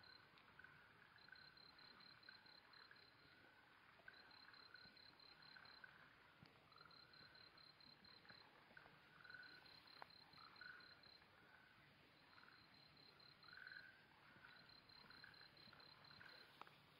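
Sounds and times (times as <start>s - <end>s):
cricket trills: 0.0s - 16.9s
frog calls: 9.2s - 11.2s, 12.3s - 16.7s.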